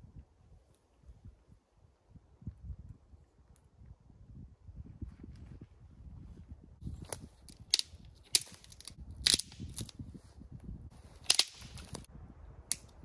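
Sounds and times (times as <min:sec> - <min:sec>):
dry branch snapping: 0:07.0 - 0:10.0, 0:11.2 - 0:12.1, 0:12.7 - 0:13.0.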